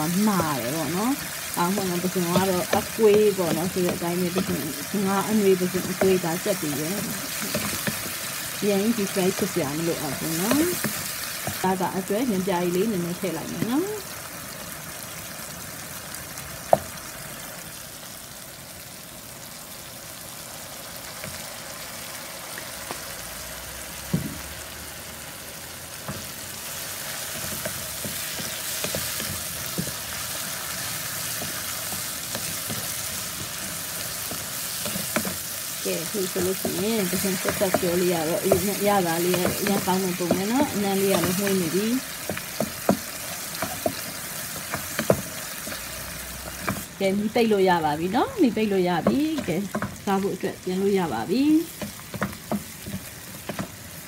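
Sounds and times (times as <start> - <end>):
person speaking: 0.0 - 7.2
shrimp sizzling in oil: 0.0 - 54.0
spatula scraping wok: 26.1 - 46.9.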